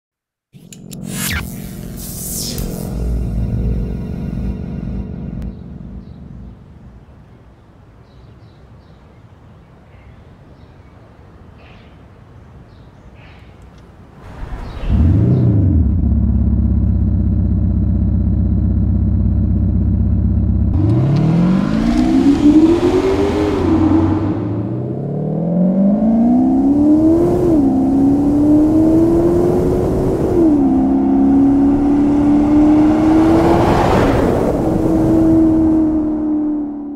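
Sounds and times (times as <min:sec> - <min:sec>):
car engine idling and accelerating: 0:00.7 - 0:07.1, 0:14.3 - 0:36.9.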